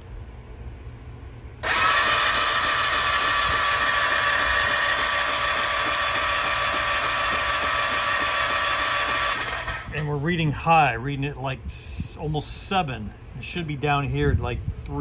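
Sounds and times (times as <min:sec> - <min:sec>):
electric starter motor whine: 0:01.6 - 0:10.1.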